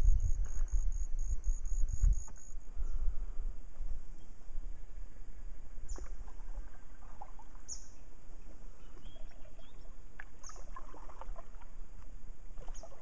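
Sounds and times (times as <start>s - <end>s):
steady low rumble: 0.0s - 5.9s
bird chirping: 7.7s - 10.7s.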